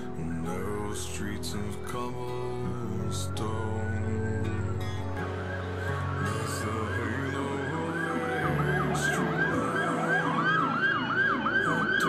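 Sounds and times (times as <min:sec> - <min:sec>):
siren wailing: 0:02.7 - 0:12.0
police siren yelp: 0:04.8 - 0:12.0.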